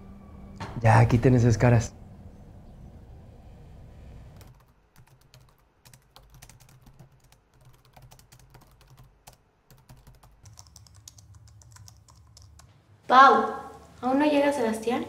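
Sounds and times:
low room hum: 0.0 - 15.0
typing on laptop keyboard: 4.4 - 12.7.

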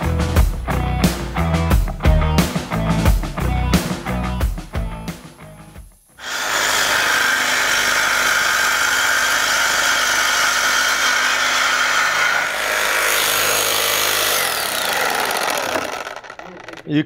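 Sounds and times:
reciprocating saw cutting steel: 6.2 - 17.0
saw motor winding down: 6.2 - 17.0.

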